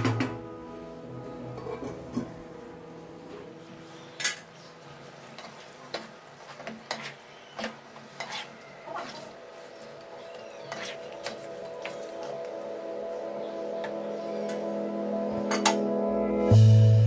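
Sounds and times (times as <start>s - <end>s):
spatula scraping a pan: 5.3s - 12.4s.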